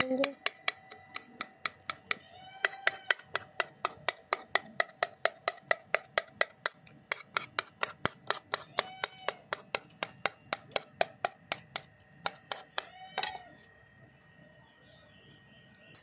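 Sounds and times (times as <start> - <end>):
metal spoon scraping a bowl: 6.6 - 13.6.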